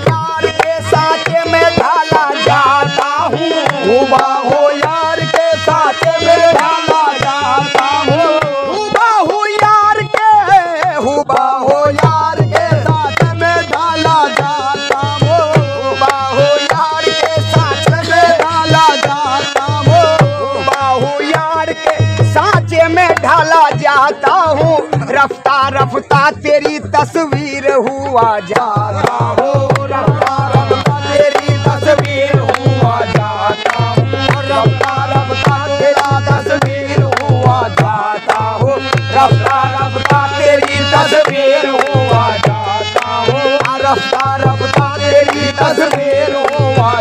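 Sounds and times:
tabla drumming: 0.0s - 47.0s.

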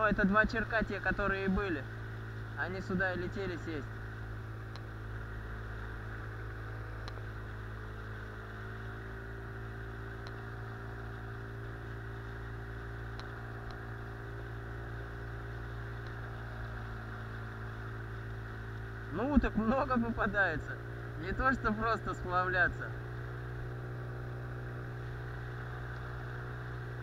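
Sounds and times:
outboard motor running steadily: 0.0s - 27.0s.

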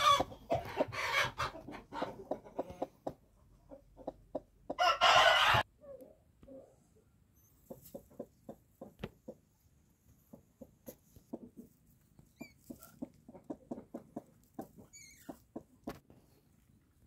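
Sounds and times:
hen clucking: 0.0s - 5.6s, 7.6s - 9.4s, 10.2s - 16.0s.

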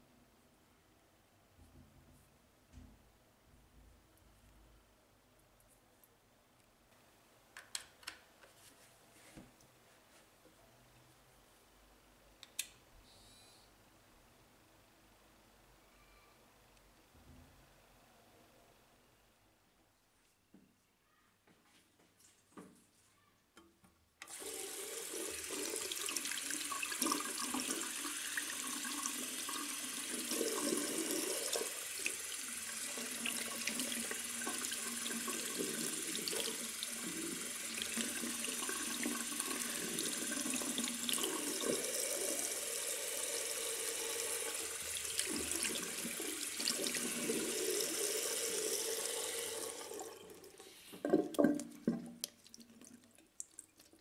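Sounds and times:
faucet running into sink: 24.2s - 53.0s.

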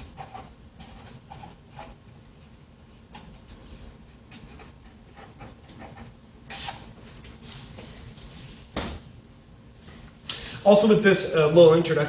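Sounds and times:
marker scratching on paper: 0.0s - 2.0s, 3.1s - 8.4s.

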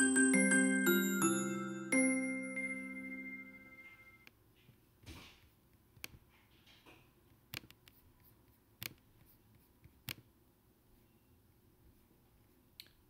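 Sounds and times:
computer mouse clicks: 6.0s - 6.2s, 7.3s - 10.3s.

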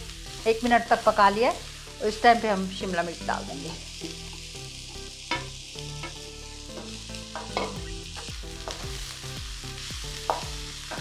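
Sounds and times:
vegetables sizzling in a wok: 0.0s - 11.0s.

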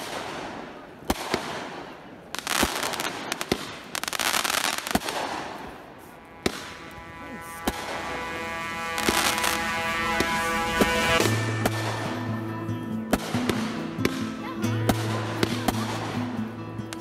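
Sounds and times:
firework bangs: 0.0s - 12.4s
firework crackling: 0.0s - 12.4s.

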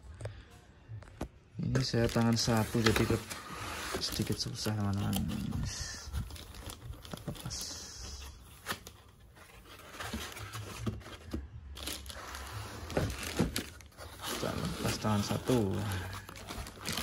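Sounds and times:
plastic wrapping crinkling: 1.7s - 17.0s
packing foam shifting: 1.8s - 7.6s, 8.6s - 17.0s.

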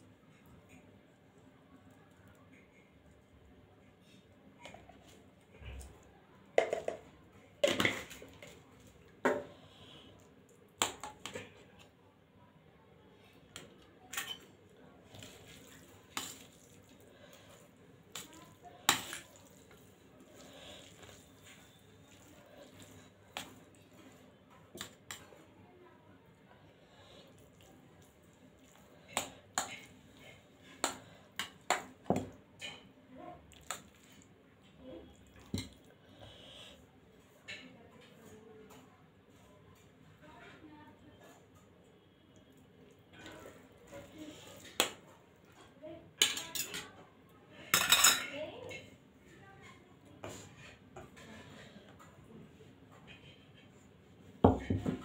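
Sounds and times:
cutlery clinking on metal plate: 46.2s - 46.9s, 47.8s - 48.4s.

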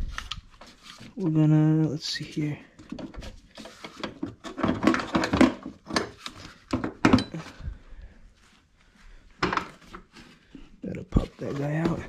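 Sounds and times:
metal knocks clunks and scraping: 2.8s - 7.6s.

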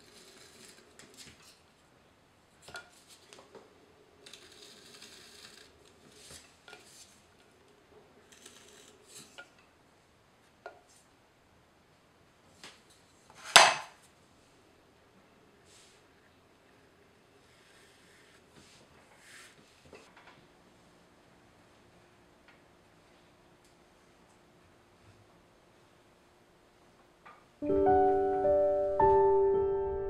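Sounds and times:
soft scraping of clay: 4.2s - 7.3s, 17.4s - 20.1s.

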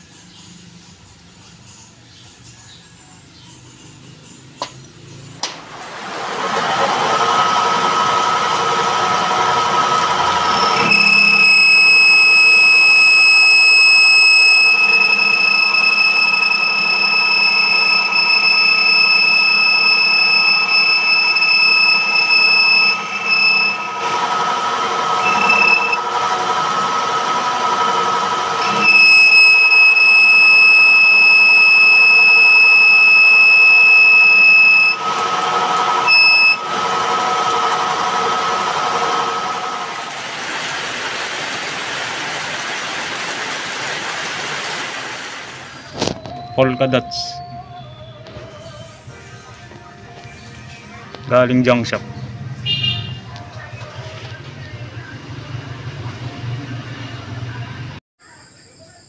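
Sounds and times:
metal lathe running: 4.6s - 47.4s
cutting tool squealing: 5.4s - 40.2s, 45.8s - 49.2s.

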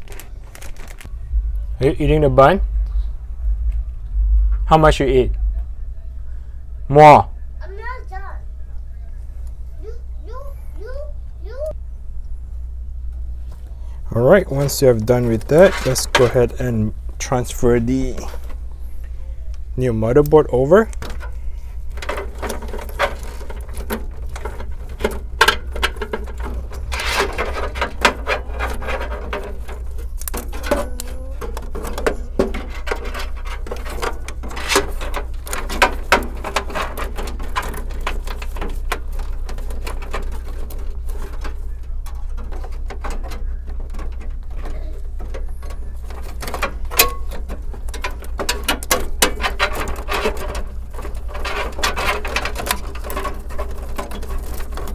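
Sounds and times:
steady low hum: 0.0s - 54.9s
motherboard clicking and scraping in case: 14.2s - 54.9s.

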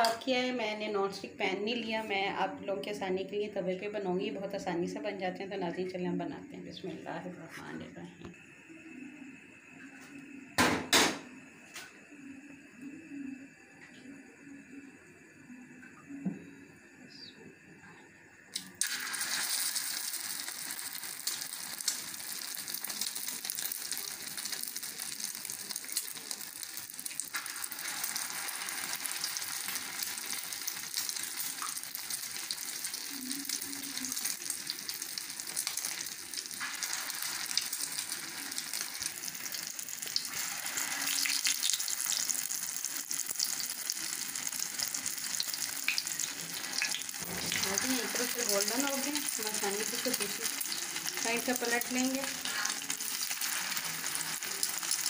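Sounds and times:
kebabs sizzling on griddle: 18.5s - 55.0s.

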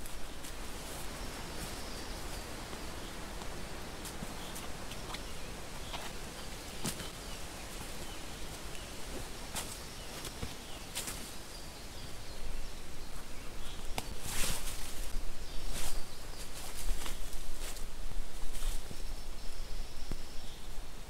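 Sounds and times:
fabric rustling on dry leaves: 0.0s - 11.5s, 13.1s - 19.0s
faint bird chirps: 1.0s - 17.7s.

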